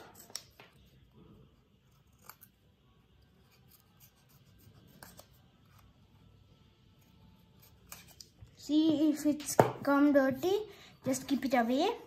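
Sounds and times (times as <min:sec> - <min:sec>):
scissors snipping paper: 0:00.0 - 0:00.9, 0:01.8 - 0:02.6, 0:03.4 - 0:05.9, 0:07.0 - 0:08.4.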